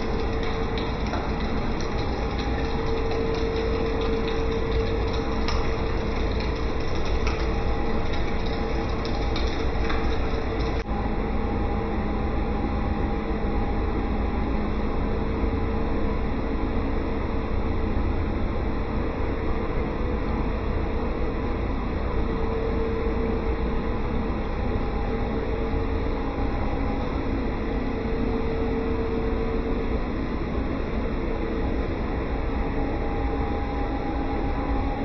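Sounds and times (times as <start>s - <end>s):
pump motor humming: 0.0s - 11.0s.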